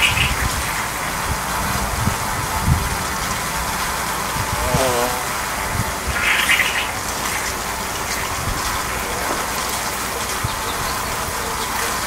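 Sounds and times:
bee swarm buzzing: 0.1 - 8.0.

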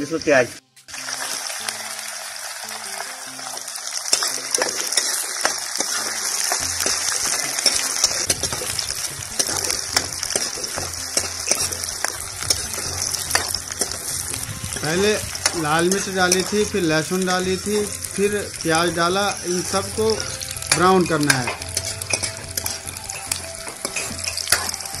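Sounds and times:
onions sizzling in hot oil: 0.0 - 25.0
metal ladle scraping pan: 4.1 - 17.0, 19.6 - 25.0.

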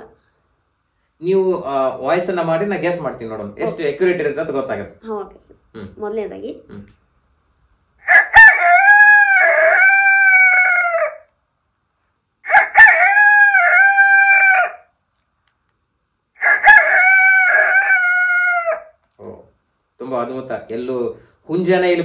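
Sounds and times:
person imitating rooster crowing: 8.0 - 11.3, 12.5 - 14.9, 16.4 - 18.9.

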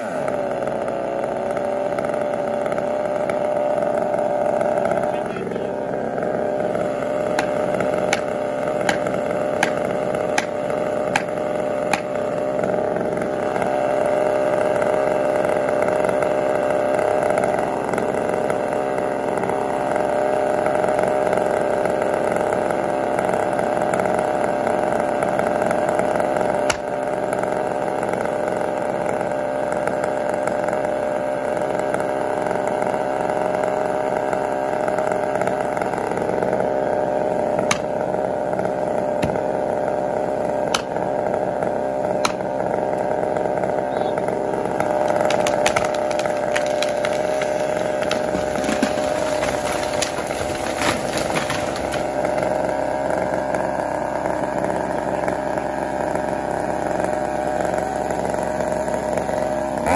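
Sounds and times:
chainsaw idling: 0.0 - 59.9
axe striking wood: 7.2 - 12.2, 26.6 - 27.0, 37.6 - 38.0, 39.2 - 39.6, 40.7 - 41.1, 42.2 - 42.6, 44.8 - 52.1.

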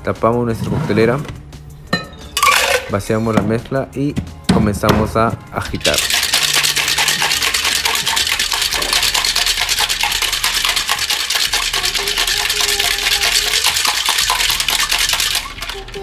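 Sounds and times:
ice rattling in cocktail shaker: 2.4 - 3.0, 5.7 - 16.0.

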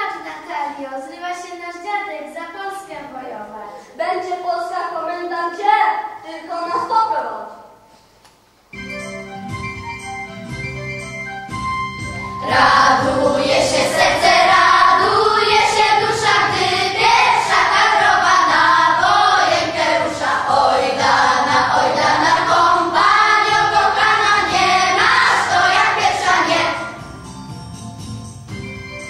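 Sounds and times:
soft instrumental notes: 8.7 - 29.0
children's choir singing: 12.4 - 27.0.

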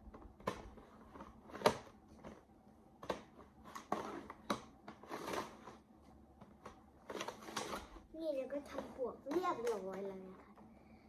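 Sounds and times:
plastic sliding and scraping: 0.0 - 10.7
plastic cube clacks: 0.1 - 5.8, 6.4 - 8.0.

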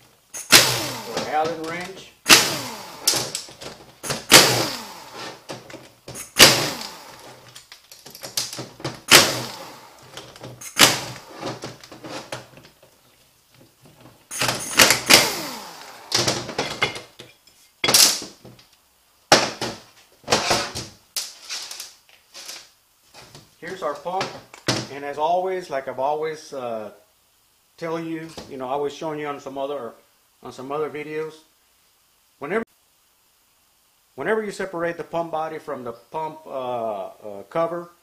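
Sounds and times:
cordless power driver running: 0.4 - 7.5, 8.9 - 12.4, 14.3 - 16.6.

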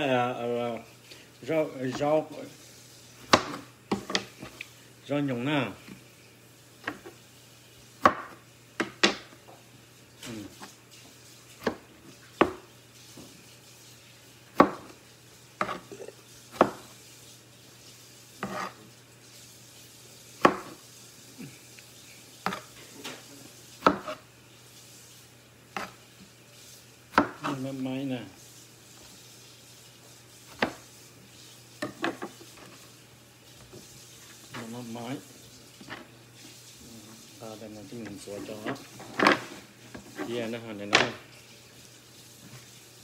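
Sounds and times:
knife chopping on cutting board: 3.3 - 4.6, 8.0 - 9.4, 11.6 - 12.7, 14.5 - 15.0, 15.6 - 15.9, 16.5 - 16.9, 18.4 - 18.8, 20.4 - 20.8, 22.4 - 22.8, 23.8 - 24.2, 25.8 - 26.0, 27.1 - 27.6, 30.5 - 30.8.

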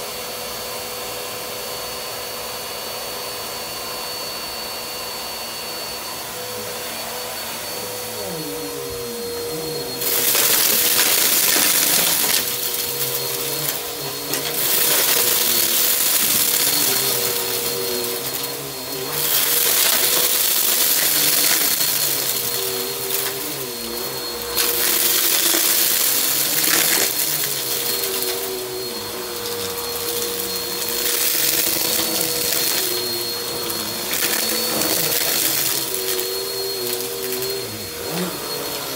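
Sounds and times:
vacuum cleaner motor whine: 0.0 - 38.9
debris crunching and rattling: 10.0 - 23.4.

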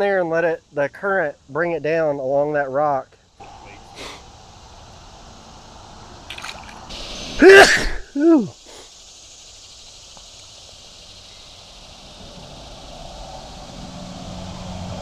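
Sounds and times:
person's loud vocal sounds: 7.4 - 8.8.

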